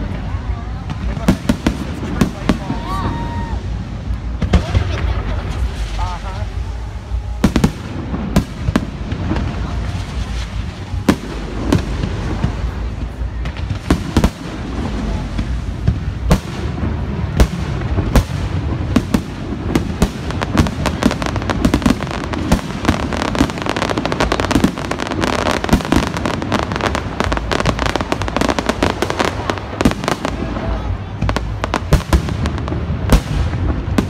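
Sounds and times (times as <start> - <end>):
fireworks bursting with bangs: 0.0 - 34.0.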